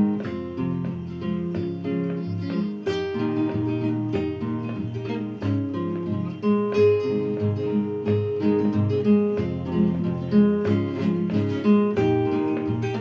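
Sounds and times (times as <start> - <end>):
plucked acoustic guitar music: 0.0 - 13.0.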